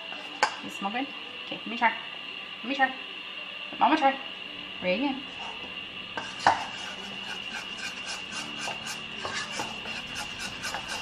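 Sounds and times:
spoon stirring in mixing bowl: 6.2 - 11.0.

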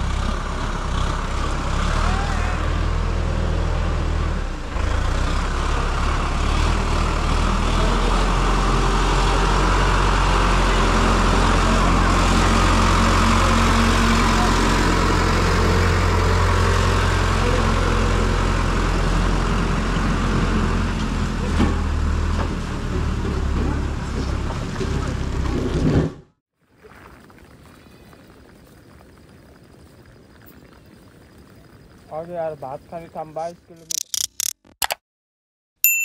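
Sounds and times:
tractor engine running under load: 0.0 - 2.1, 2.7 - 26.0.

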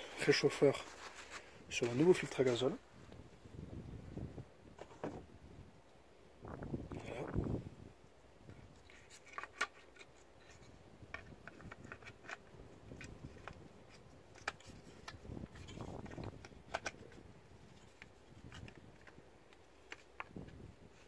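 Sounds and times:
plastic parts clicking and tapping: 9.2 - 17.2.

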